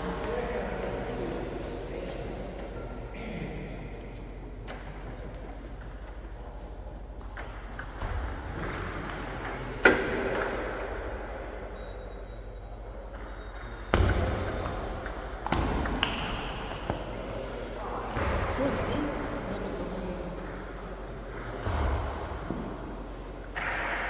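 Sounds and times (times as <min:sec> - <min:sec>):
table tennis ball hits echoing: 0:07.4 - 0:11.3, 0:13.0 - 0:24.0.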